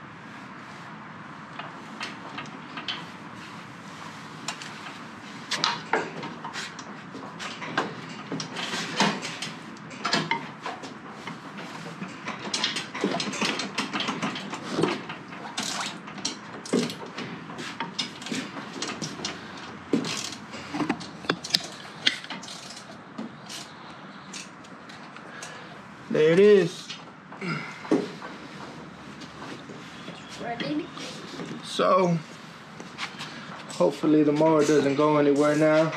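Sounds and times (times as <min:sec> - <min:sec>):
metal parts and tools clinking: 0:05.6 - 0:17.2, 0:17.8 - 0:25.5.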